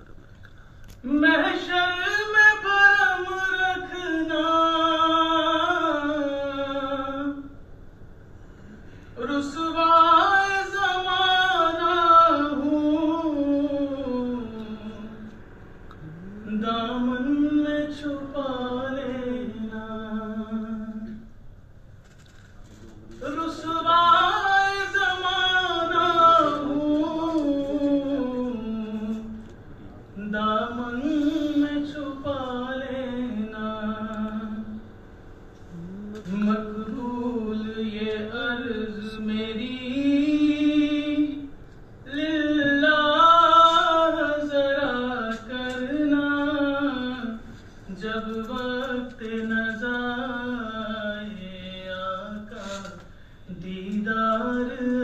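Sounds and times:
man chanting melodically unaccompanied: 0:01.0 - 0:07.5, 0:22.6 - 0:34.8, 0:35.7 - 0:55.0
man singing into microphone: 0:23.2 - 0:29.3, 0:30.2 - 0:34.7, 0:42.1 - 0:55.0.

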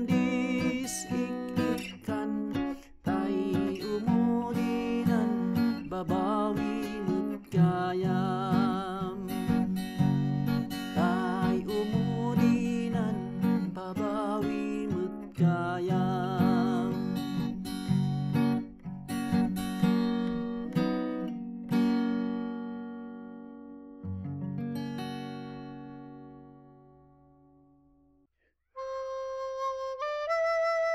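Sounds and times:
man singing with vibrato: 0:00.0 - 0:09.8, 0:10.7 - 0:17.5
strummed acoustic guitar: 0:00.0 - 0:27.8.

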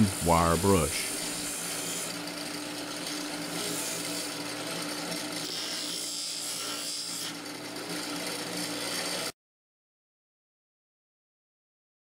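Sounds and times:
bench grinder motor hum: 0:00.0 - 0:09.4.

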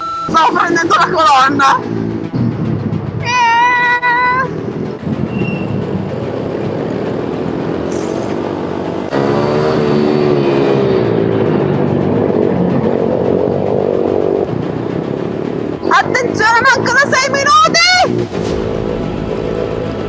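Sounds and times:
small motorbike engines revving: 0:04.8 - 0:18.4.

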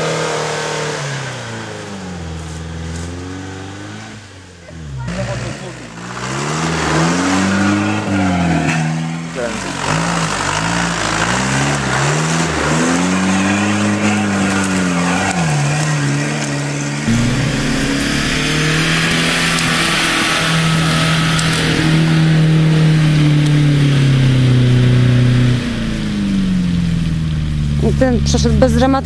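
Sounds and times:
engine revving: 0:00.0 - 0:29.0
engine running under load: 0:00.0 - 0:29.0
rushing noise: 0:17.1 - 0:27.5.

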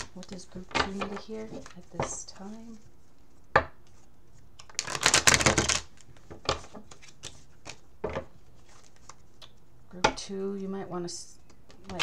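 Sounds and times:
cards shuffling: 0:00.0 - 0:09.6.

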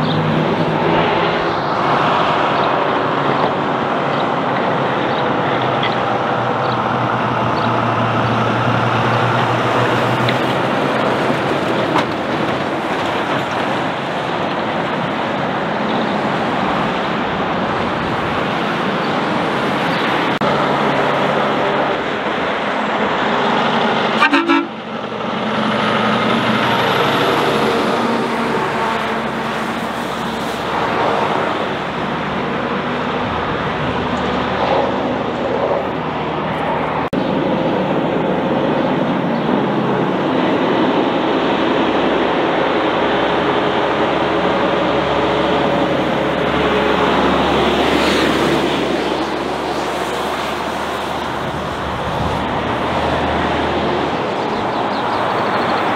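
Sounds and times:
heavy trucks passing: 0:00.0 - 0:55.9
truck horn toot: 0:24.1 - 0:24.8.

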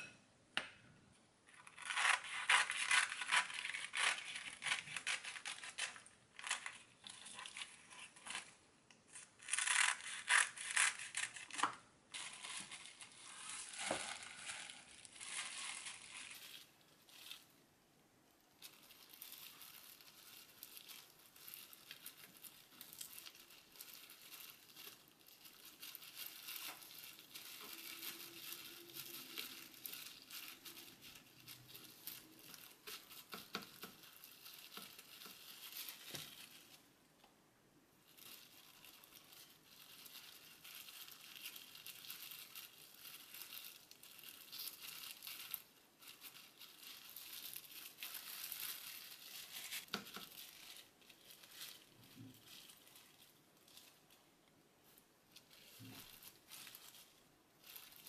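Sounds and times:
plastic glove crinkling: 0:01.4 - 0:58.0.

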